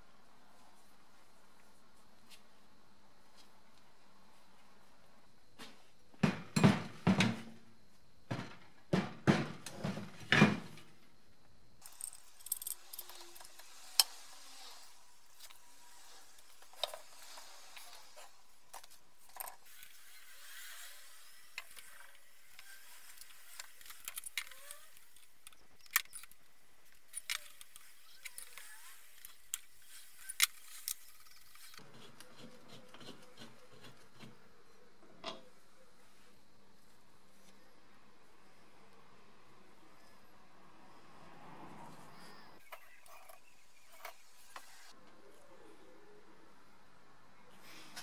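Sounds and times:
metal parts knocking and clinking: 11.8s - 13.6s.

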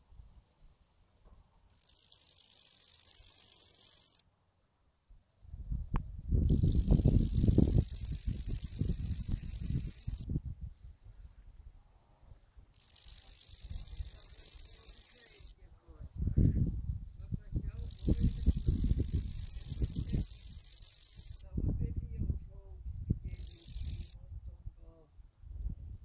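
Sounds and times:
katydid buzzing trills: 1.7s - 4.2s, 6.5s - 10.3s, 12.8s - 15.5s, 17.8s - 21.4s, 23.3s - 24.2s.

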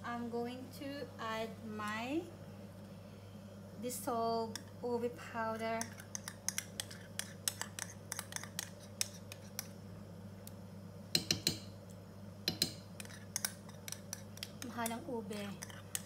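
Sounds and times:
steady low hum: 0.0s - 16.0s
metal spoon scraping a cup: 5.8s - 9.7s, 13.0s - 16.0s.

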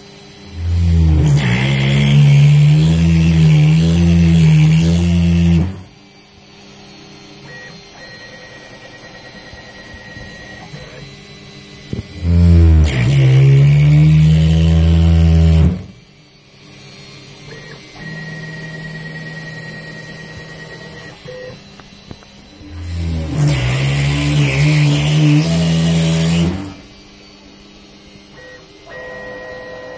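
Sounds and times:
loud deep machine sound: 0.0s - 6.0s, 11.9s - 16.1s, 22.6s - 27.0s
router spindle high whine: 0.0s - 29.9s.

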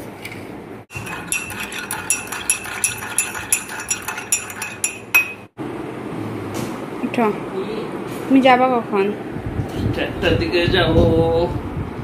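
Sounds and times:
teaspoon clinking in mug: 0.9s - 5.5s.

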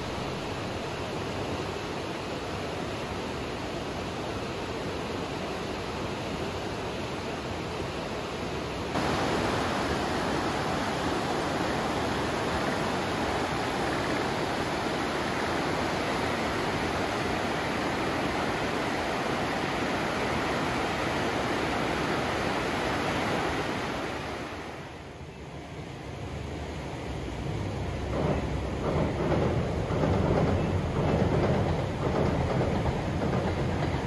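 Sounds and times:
river rushing over rocks: 0.0s - 25.1s.

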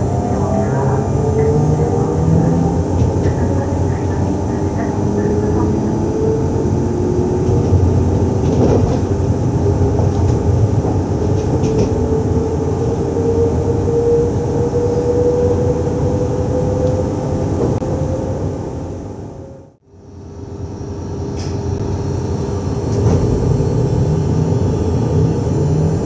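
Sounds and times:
electric train drone: 0.0s - 26.0s.

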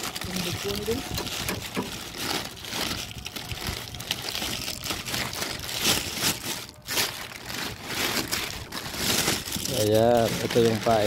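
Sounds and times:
plastic bag rustling and crinkling: 0.0s - 11.0s.

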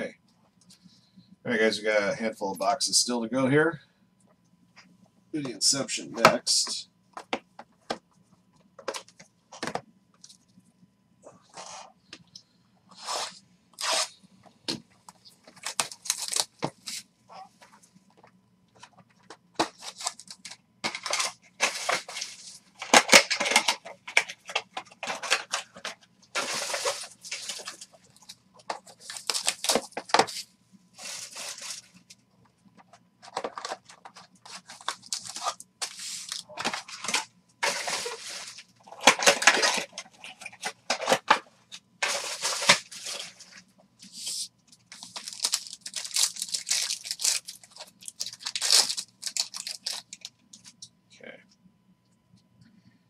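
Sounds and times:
plastic wrap and foil crinkling: 15.2s - 17.5s, 18.8s - 30.4s, 31.0s - 32.2s, 33.2s - 41.4s, 42.0s - 50.8s.

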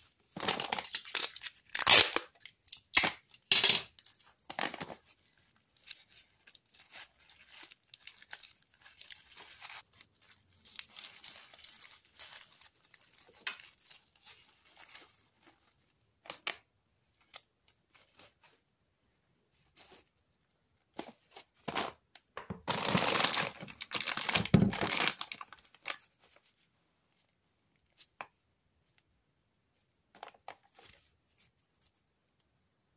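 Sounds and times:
paper rustling and tearing: 4.1s - 15.8s, 22.7s - 26.5s.

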